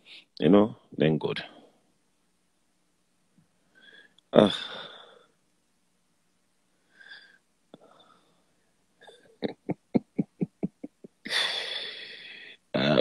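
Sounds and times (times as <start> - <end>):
faint breath: 3.7 - 5.4, 6.7 - 8.6, 11.3 - 12.7
man laughing breathily: 9.0 - 12.3.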